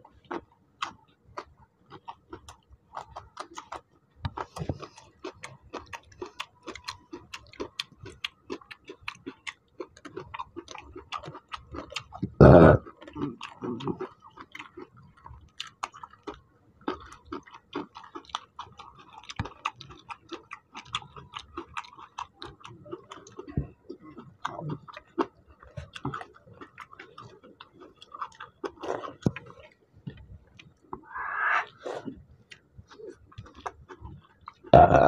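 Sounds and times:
wet chewing of rice: 0.0 - 35.0.

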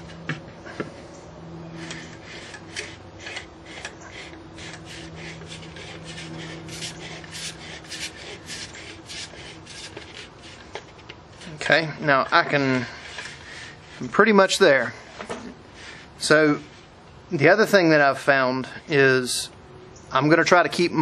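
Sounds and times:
wooden threads rasping: 1.7 - 17.0.

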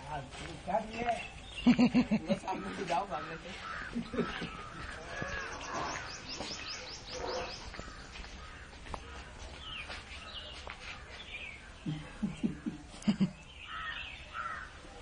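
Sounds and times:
birds chirping: 0.1 - 15.0
crows cawing: 2.5 - 6.4, 7.2 - 9.3, 13.6 - 14.8.

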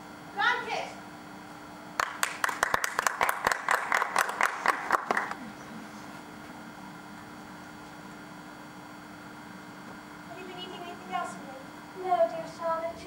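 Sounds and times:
audience applauding: 2.0 - 5.4.

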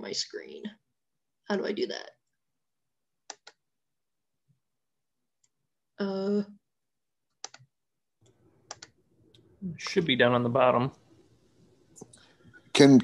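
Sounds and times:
computer clicks: 3.3 - 3.6, 7.4 - 7.7, 8.6 - 9.0.

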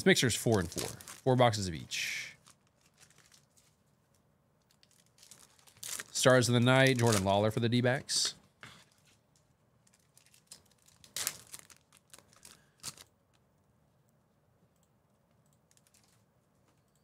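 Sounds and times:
wrappers crinkling and tearing: 0.4 - 1.6, 2.3 - 3.8, 4.7 - 7.4, 9.8 - 13.1, 15.7 - 16.2.

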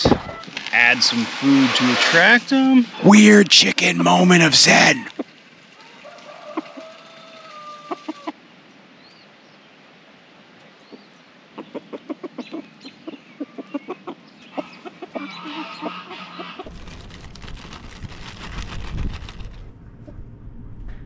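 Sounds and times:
chickens clucking: 0.0 - 1.7, 4.9 - 8.4, 11.6 - 16.7
wind rumbling on microphone: 0.0 - 2.3, 16.7 - 21.0
plastic bag rustling: 0.0 - 2.4, 16.7 - 19.7
frozen peas rattling onto ground: 16.7 - 19.7.

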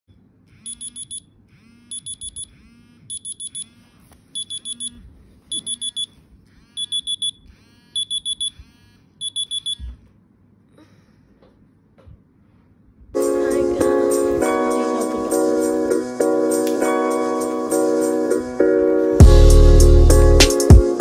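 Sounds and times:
phone alarm beeps: 0.6 - 1.3, 1.9 - 2.5, 3.1 - 3.7, 4.4 - 6.2, 6.8 - 7.4, 8.0 - 8.6, 9.2 - 9.9.

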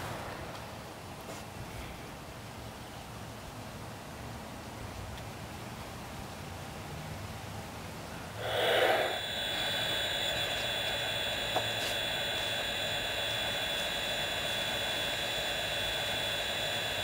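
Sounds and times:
high whine: 8.4 - 17.0
simulated steam hiss: 8.4 - 17.0.

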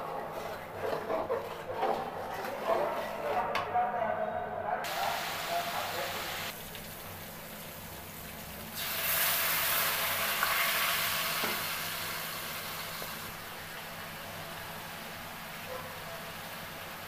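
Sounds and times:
steel spatula scraping a wok: 0.0 - 3.6
paste sizzling in hot oil: 4.9 - 13.3.

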